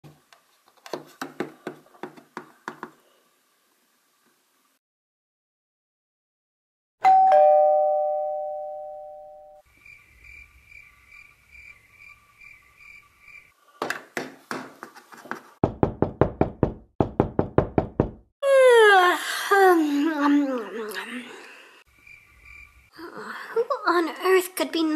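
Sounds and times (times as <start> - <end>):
doorbell ding-dong: 7.0 - 9.6
rapid knocking on door: 15.6 - 18.3.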